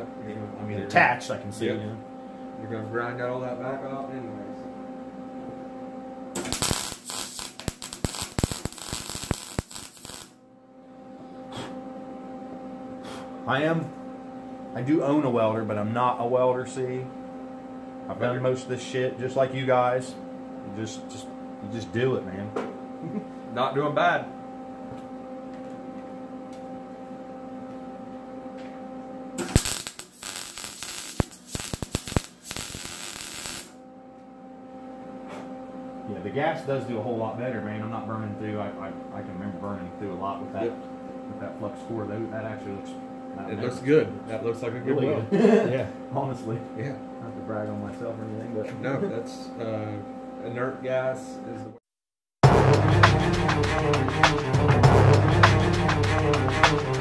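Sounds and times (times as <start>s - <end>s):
steady electrical hum: 0.0s - 51.8s
welder arc crackling: 6.4s - 10.4s, 29.4s - 33.8s.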